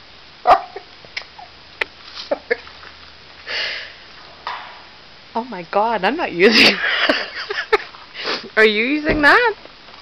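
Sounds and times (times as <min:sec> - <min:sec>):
person sniffing: 0:03.5 - 0:04.0, 0:08.2 - 0:08.5.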